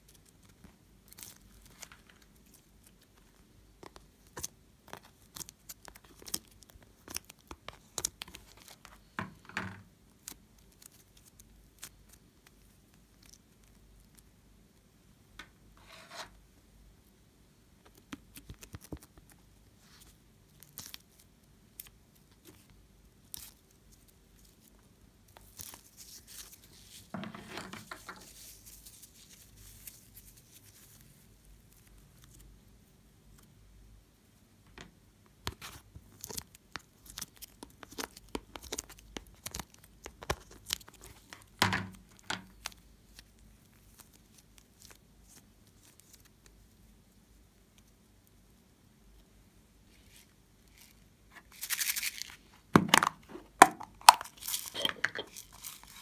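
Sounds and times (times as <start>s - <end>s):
sticky crackles and pops: 35.5s - 41.4s.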